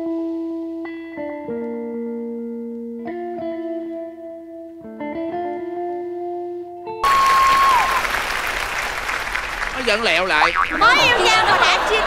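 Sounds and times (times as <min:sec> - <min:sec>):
studio audience applause: 0:07.0 - 0:12.0.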